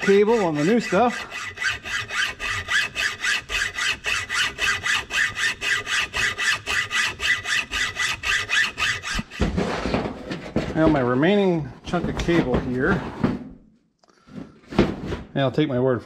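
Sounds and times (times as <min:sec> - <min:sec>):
hacksaw cutting cable: 0:00.0 - 0:09.6.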